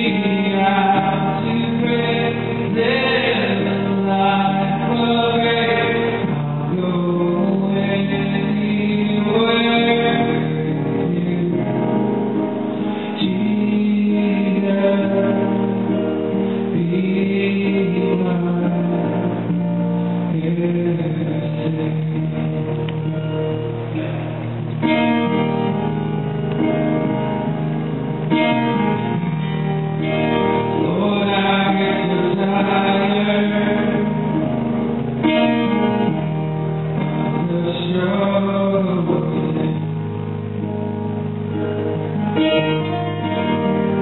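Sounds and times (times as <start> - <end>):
man singing: 0.0 - 23.3, 30.0 - 36.2, 36.9 - 40.5
sustained keyboard chords: 0.0 - 44.0.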